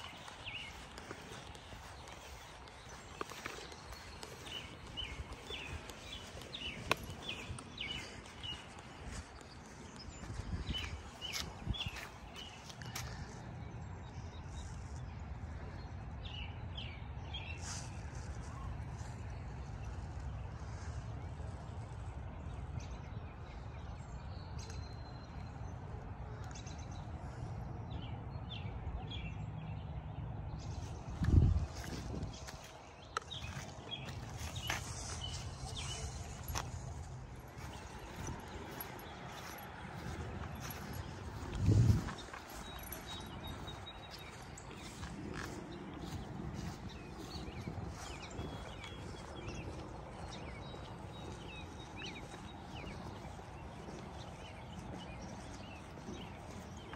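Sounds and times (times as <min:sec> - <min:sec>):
footsteps on grass and pavement: 0:00.0 - 0:27.8, 0:29.8 - 0:56.9
small birds chirping: 0:00.0 - 0:56.9
bird chirping: 0:33.2 - 0:56.9.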